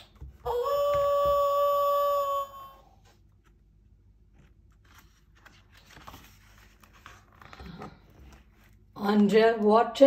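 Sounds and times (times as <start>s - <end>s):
paper page turning: 3.0s - 8.9s.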